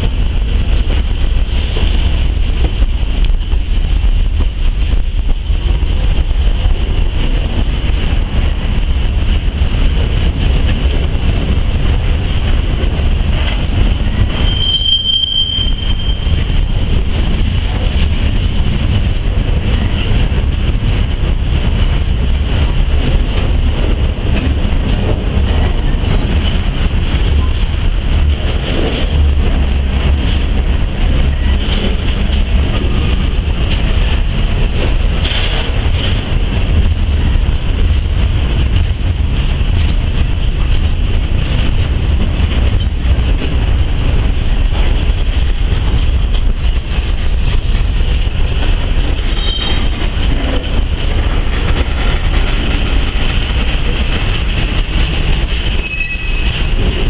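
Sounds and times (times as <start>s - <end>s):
train wheels rumbling on rails: 0.0s - 57.0s
high wheel squeal: 14.2s - 16.4s, 55.2s - 57.0s.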